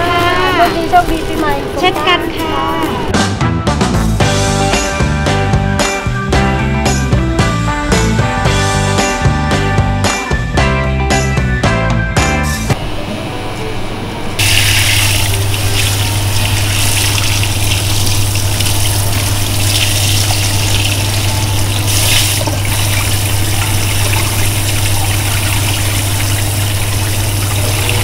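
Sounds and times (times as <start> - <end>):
water spraying and splashing: 14.4 - 28.0.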